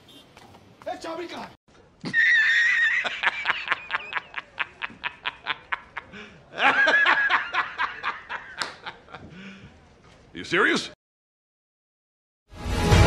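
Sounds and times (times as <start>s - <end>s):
high-pitched cackling laughter: 2.0s - 9.2s.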